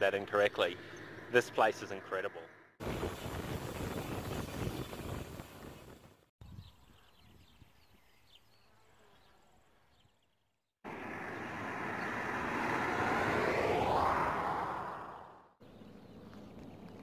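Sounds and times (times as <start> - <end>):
vehicle passing on road: 0.0 - 2.8, 10.8 - 17.0.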